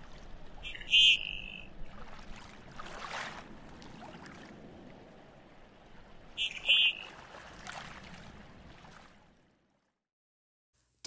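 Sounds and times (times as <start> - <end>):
open water wash: 0.0 - 10.0
duck call: 0.6 - 1.7, 6.4 - 7.1.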